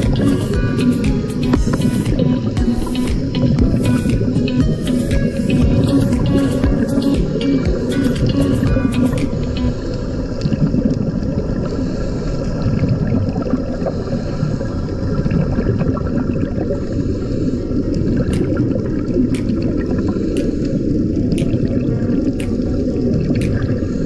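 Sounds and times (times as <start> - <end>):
air bubbling underwater: 0.0 - 11.6, 18.0 - 24.0
muffled underwater rumble: 0.0 - 24.0.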